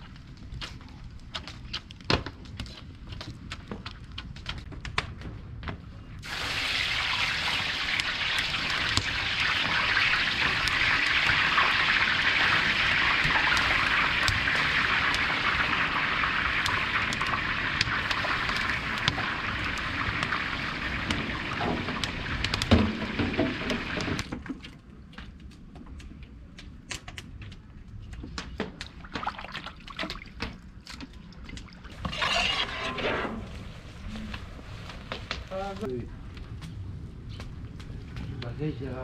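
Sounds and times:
wood fire crackling: 0.0 - 39.0
water boiling with hiss: 6.2 - 24.3
water splashing in tub: 29.0 - 30.5.

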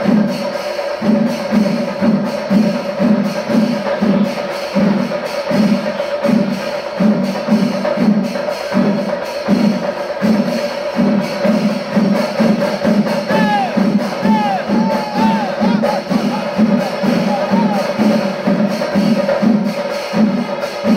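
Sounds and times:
drums and cymbals playing: 0.0 - 20.9
high gliding calls: 13.2 - 18.4.

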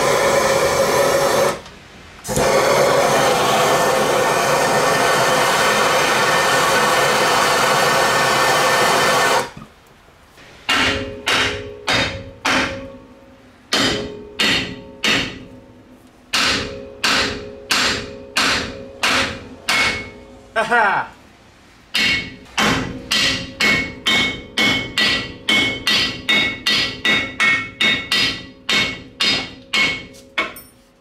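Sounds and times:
gas torch running: 0.0 - 9.7
hammer striking steel: 10.7 - 15.6, 16.3 - 20.5, 21.9 - 30.8.

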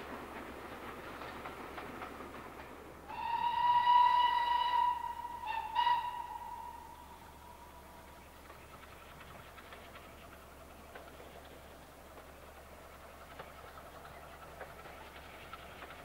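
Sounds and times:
steam train running: 0.0 - 16.0
steam locomotive whistle: 3.1 - 7.4.

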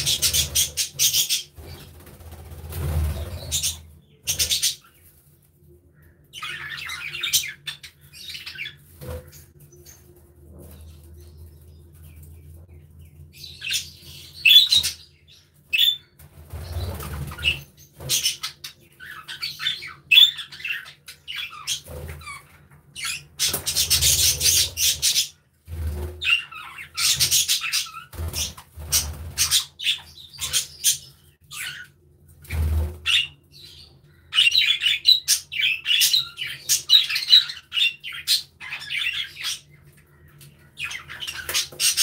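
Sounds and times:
budgerigars chirping and chattering: 0.0 - 2.0, 2.8 - 5.0, 6.3 - 10.0, 13.0 - 25.4, 26.2 - 42.0
wing flutter: 0.0 - 4.6.

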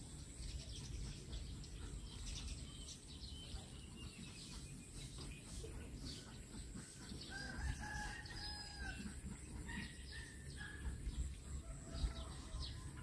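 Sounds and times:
small birds chirping: 0.0 - 13.0
rooster crowing: 7.3 - 10.4.

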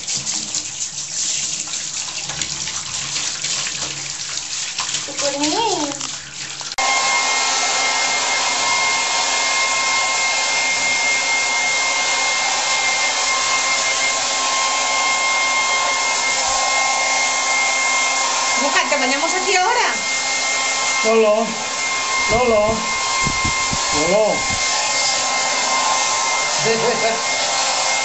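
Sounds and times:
hair dryer running: 6.8 - 28.0.

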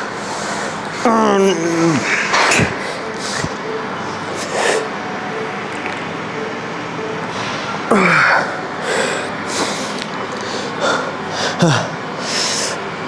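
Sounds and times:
man groaning: 7.9 - 8.5, 11.4 - 12.0.

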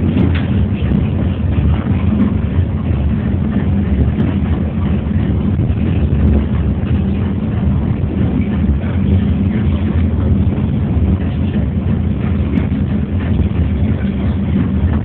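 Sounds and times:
funicular car rumbling: 0.0 - 15.0.

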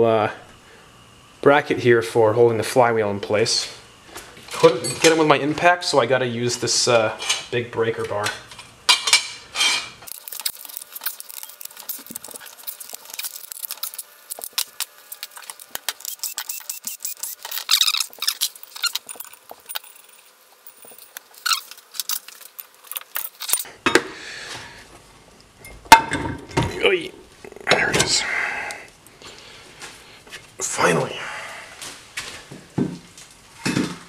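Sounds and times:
metal bolts and tools clinking: 9.0 - 23.7.

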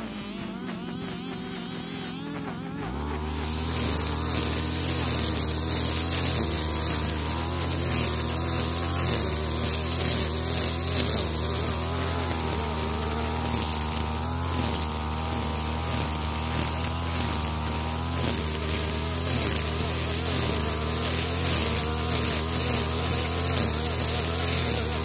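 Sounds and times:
brushcutter engine cutting grass: 0.0 - 25.0.

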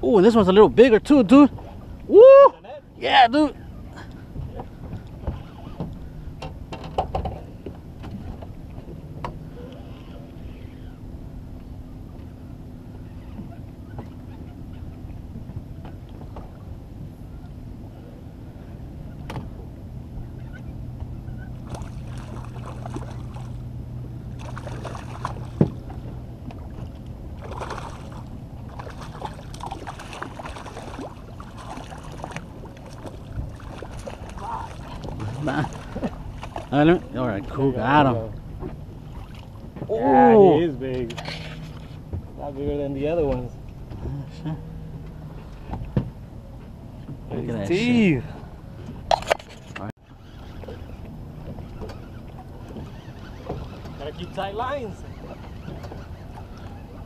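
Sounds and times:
steady low hum: 1.8 - 47.4
water wash: 26.7 - 38.3.

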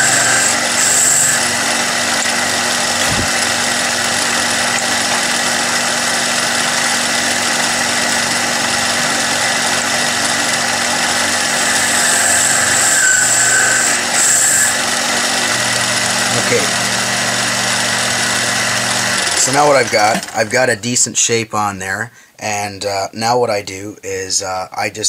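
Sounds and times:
high-pitched whine: 0.0 - 1.6, 11.5 - 14.8
lathe running: 0.0 - 20.6.

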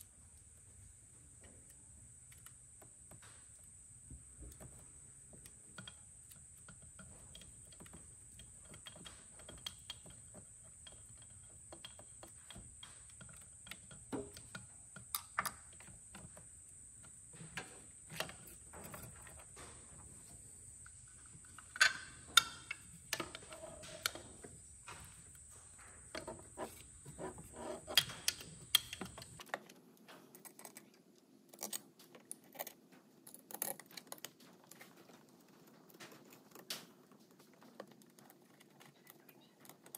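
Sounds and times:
plastic parts clicking and snapping: 4.4 - 16.4, 20.8 - 39.9.

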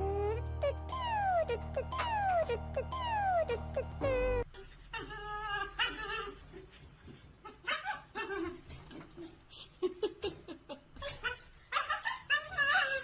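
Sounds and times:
dog whining: 0.0 - 6.7, 11.0 - 13.0.

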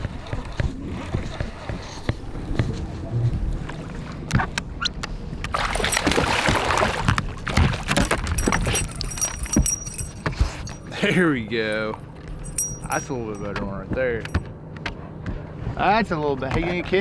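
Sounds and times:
fish splashing in water: 5.5 - 9.1
metallic jingling: 8.0 - 13.6.

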